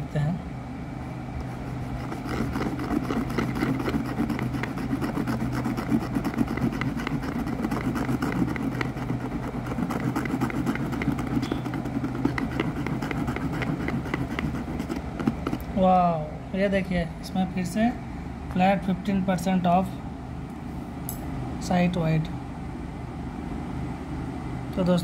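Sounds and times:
low steady hum: 0.0s - 25.0s
scratch card being scraped: 1.5s - 15.6s.

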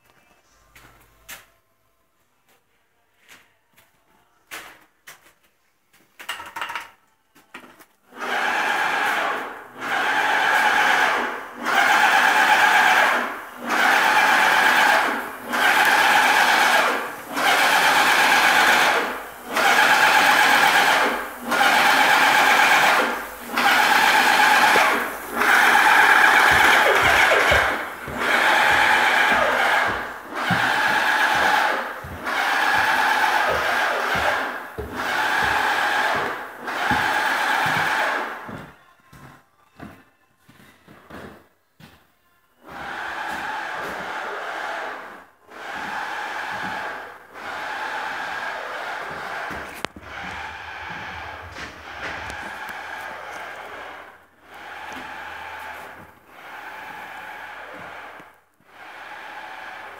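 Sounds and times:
small motor running in surges: 8.3s - 38.2s.

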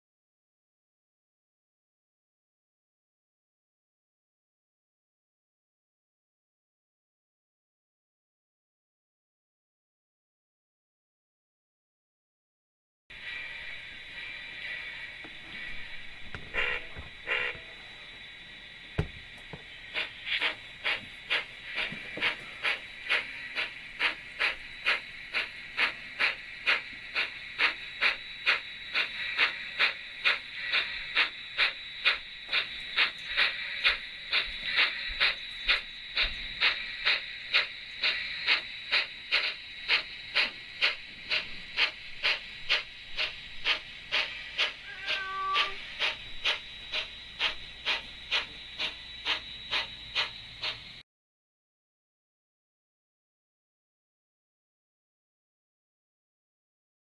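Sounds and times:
steam hiss: 13.1s - 51.0s
steam locomotive exhaust chuffs: 13.1s - 51.0s.

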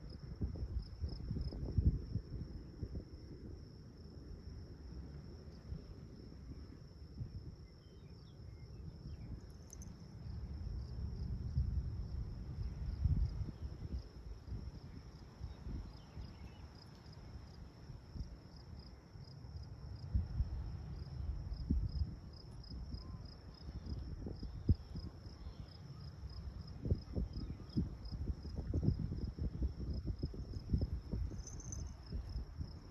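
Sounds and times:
insects trilling: 12.6s - 20.0s, 21.0s - 32.9s.

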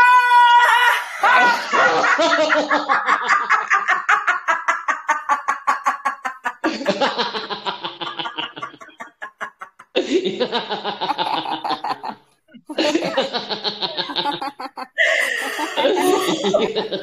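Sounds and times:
person laughing in rapid pulses: 12.7s - 17.0s.

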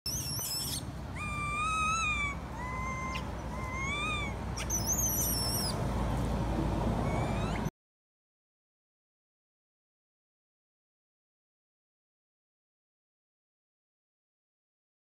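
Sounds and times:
high monkey squeal: 0.1s - 5.8s, 7.0s - 7.7s
young monkey whimpering calls: 0.1s - 5.8s, 7.0s - 7.7s.

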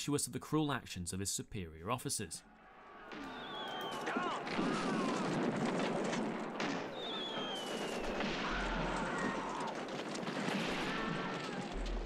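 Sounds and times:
falling whistle: 3.0s - 5.0s, 6.9s - 9.4s
explosions: 3.0s - 12.0s
gunfire: 3.0s - 12.0s.

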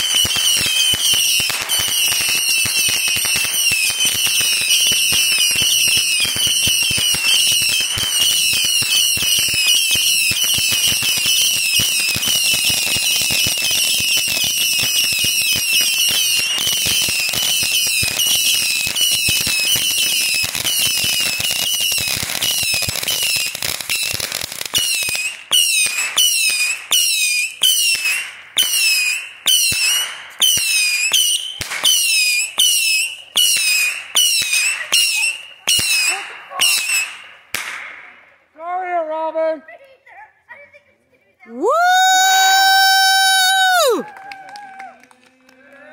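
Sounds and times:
pop followed by falling whistle: 0.0s - 36.0s
whistling fireworks: 0.0s - 38.4s, 41.6s - 45.2s
fireworks crackling: 0.0s - 45.6s.

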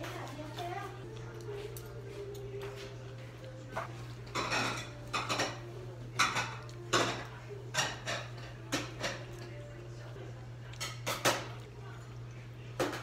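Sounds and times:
metal utensils clinking on bowl: 3.7s - 9.8s, 10.7s - 11.7s.

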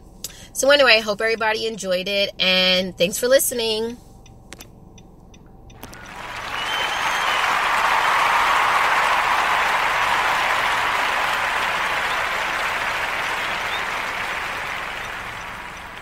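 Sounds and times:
crowd clapping: 5.8s - 16.0s.

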